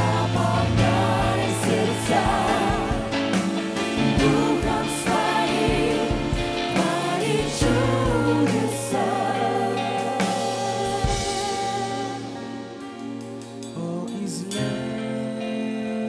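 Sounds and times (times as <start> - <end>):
group singing: 0.0 - 12.6
band playing: 0.0 - 13.9.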